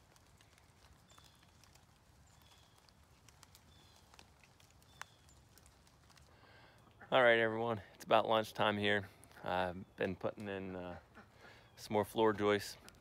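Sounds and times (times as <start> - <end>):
twig snap: 0.0 - 6.3
goats stepping in dry leaves: 0.0 - 7.0.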